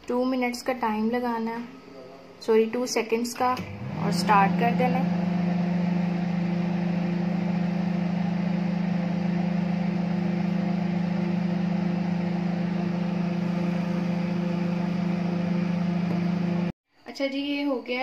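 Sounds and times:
microwave oven humming: 0:03.4 - 0:16.7.

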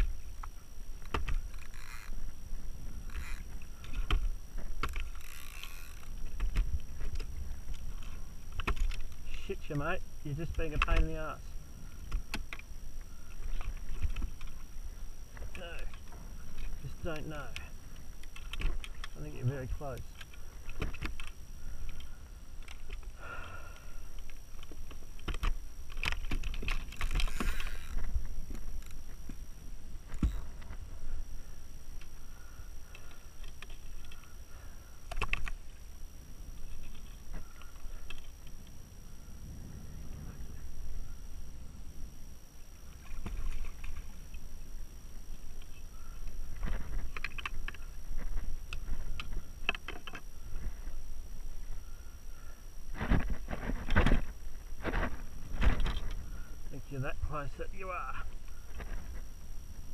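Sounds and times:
wind rumble on microphone: 0:38.5 - 0:45.6.

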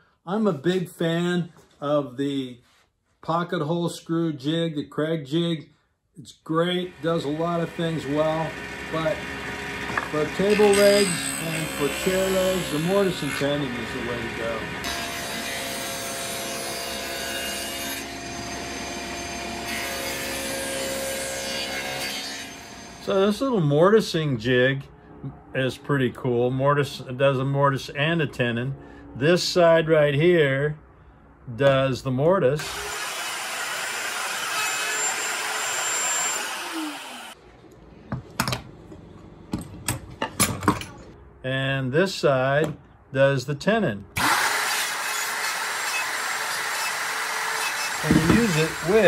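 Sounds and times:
table saw cutting wood: 0:06.8 - 0:23.2, 0:32.6 - 0:37.4, 0:44.2 - 0:49.0
wooden knocks and clatters: 0:48.1 - 0:48.5.

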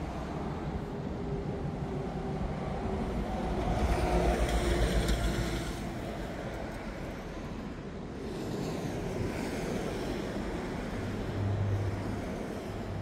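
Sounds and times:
ocean surf: 0:06.1 - 0:13.0.

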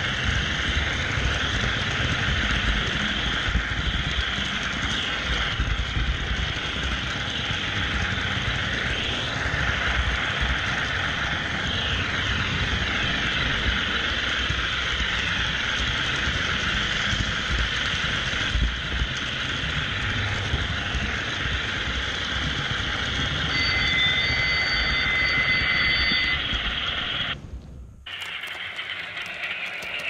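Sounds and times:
light clicks of train: 0:14.1 - 0:19.7, 0:28.1 - 0:30.0
steady high tone: 0:23.2 - 0:27.4
model train wheels and motor rattling: 0:28.1 - 0:30.0.

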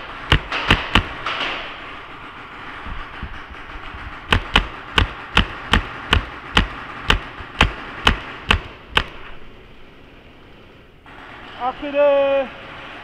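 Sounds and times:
paintball marker firing pops: 0:00.3 - 0:01.6, 0:04.3 - 0:09.3.

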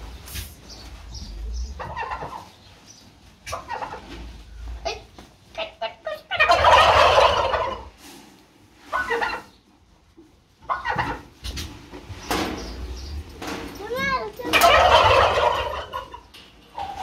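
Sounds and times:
turkeys gobbling: 0:01.2 - 0:02.7, 0:03.4 - 0:08.0, 0:08.8 - 0:09.7, 0:10.6 - 0:11.7, 0:14.4 - 0:17.0.

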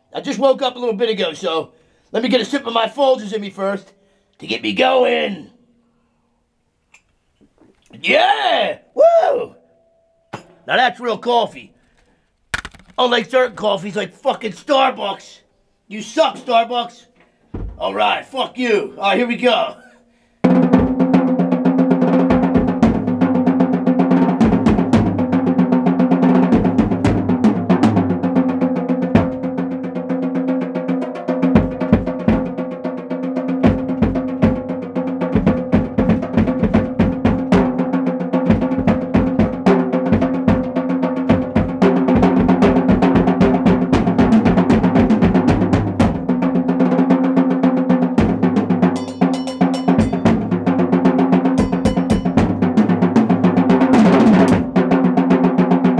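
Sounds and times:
drum kit solo: 0:20.4 - 0:55.9.

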